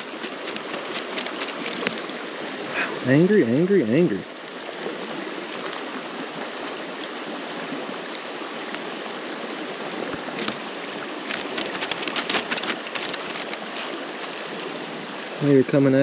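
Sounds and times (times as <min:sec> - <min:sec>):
fish thrashing in net splashes: 0:00.0 - 0:02.3, 0:10.2 - 0:14.2
creek water rushing over rocks: 0:00.0 - 0:16.0.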